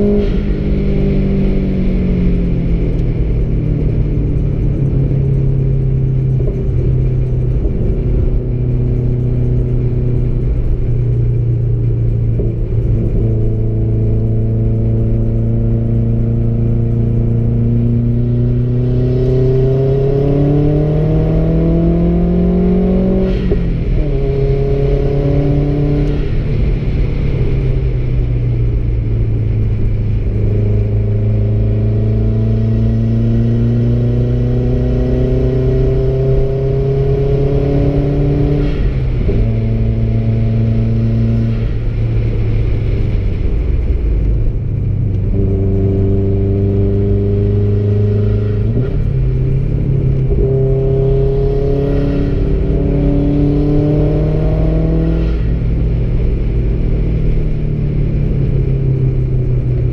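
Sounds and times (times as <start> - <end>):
car engine from inside cabin: 0.0 - 59.9
road and tyre rumble: 0.0 - 59.9.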